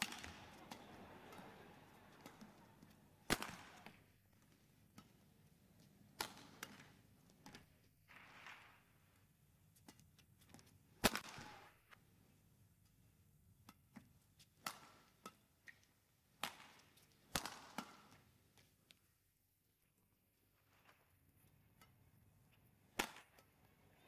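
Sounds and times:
rackets striking shuttlecock: 0:00.0 - 0:08.6, 0:09.8 - 0:11.7, 0:13.6 - 0:18.7, 0:21.4 - 0:24.0.

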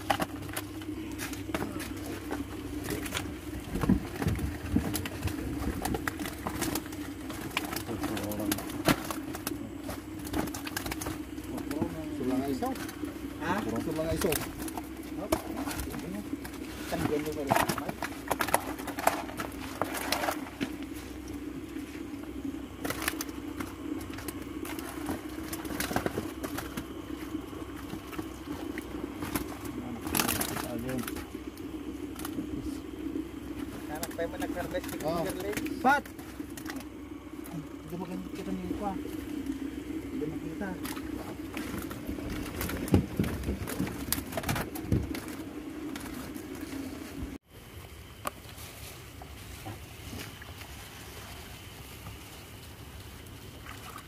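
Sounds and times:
fish flapping in plastic basket: 0:00.0 - 0:11.8, 0:22.8 - 0:31.4, 0:40.8 - 0:46.8
steady low hum: 0:00.0 - 0:54.0.

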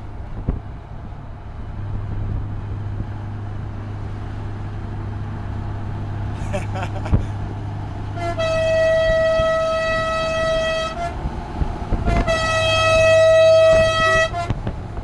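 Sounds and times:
truck air horn blasts: 0:08.1 - 0:11.3, 0:12.0 - 0:14.7.

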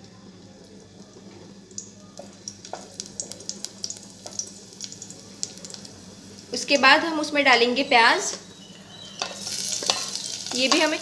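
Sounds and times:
garlic sizzling in oil: 0:01.5 - 0:11.0
spatula stirring in pot: 0:09.2 - 0:10.9.

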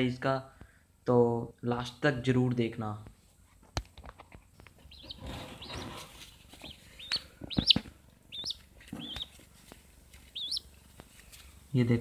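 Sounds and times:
pigeon chick calling: 0:04.7 - 0:09.5, 0:10.2 - 0:10.8
rustling from handling: 0:05.0 - 0:06.9.

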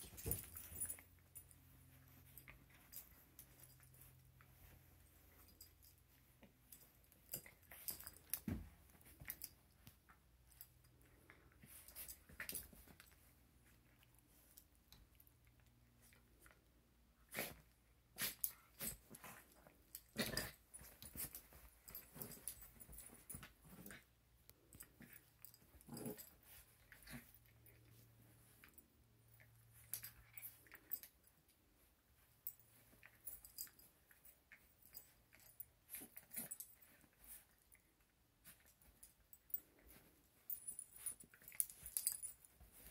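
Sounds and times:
dogs scuffling on a bed: 0:18.2 - 0:24.0.

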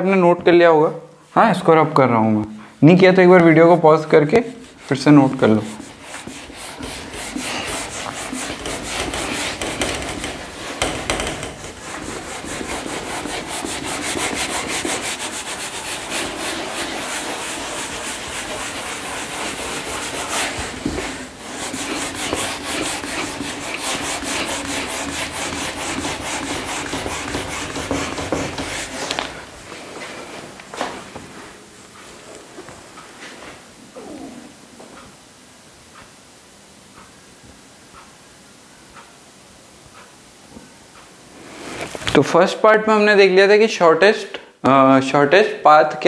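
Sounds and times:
eraser scrubbing a board: 0:04.2 - 0:30.5.

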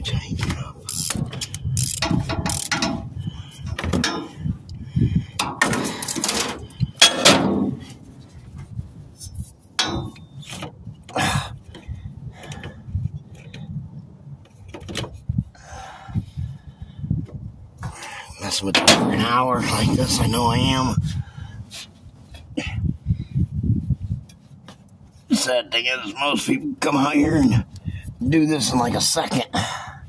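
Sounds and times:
metal tool clicking and scraping: 0:00.9 - 0:03.1.

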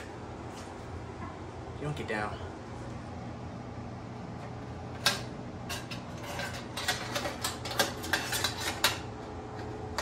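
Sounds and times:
steady low hum: 0:00.0 - 0:10.0
metal burner parts clinking: 0:05.0 - 0:09.1.

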